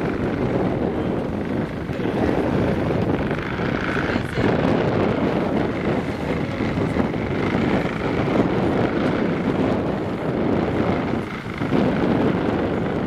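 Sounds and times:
water rushing along hull: 0:00.0 - 0:13.0
wind buffeting microphone: 0:00.0 - 0:13.0.

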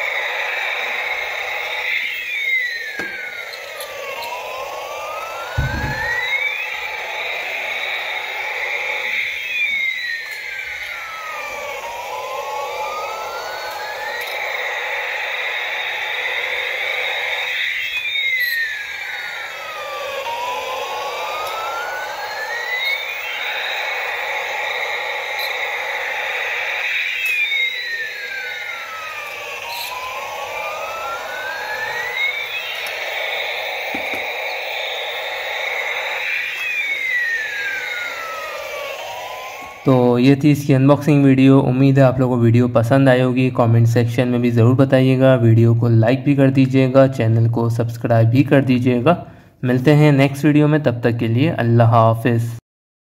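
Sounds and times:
small motor whirring: 0:00.0 - 0:39.9
toy electronic siren wailing: 0:00.0 - 0:49.1.

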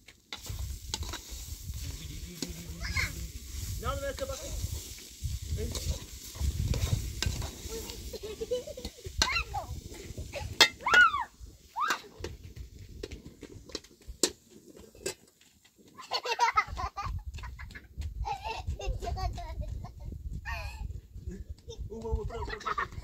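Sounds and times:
metal utensil scraping cooking pot: 0:00.3 - 0:10.9
child's voice: 0:02.8 - 0:03.2, 0:09.2 - 0:09.7.

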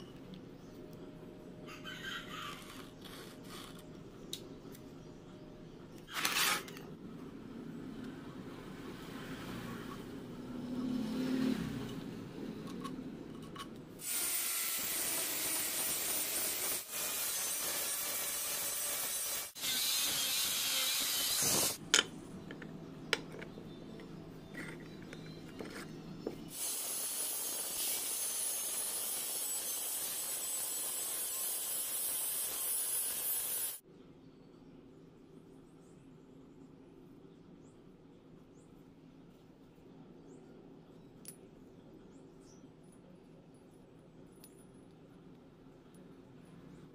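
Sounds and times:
metalworking tool hissing and grinding: 0:14.0 - 0:21.8, 0:26.5 - 0:33.8.

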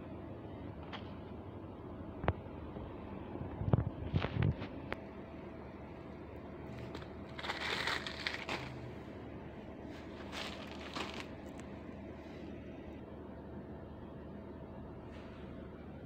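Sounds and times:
plastic packaging crinkling: 0:06.8 - 0:08.8, 0:10.0 - 0:11.7
small crackles: 0:06.8 - 0:08.8, 0:10.2 - 0:11.7.

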